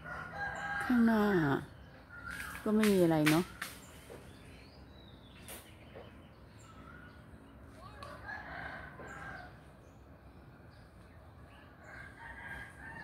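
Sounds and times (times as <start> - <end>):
rooster crowing: 0.0 - 1.0, 8.0 - 9.6, 11.8 - 13.0.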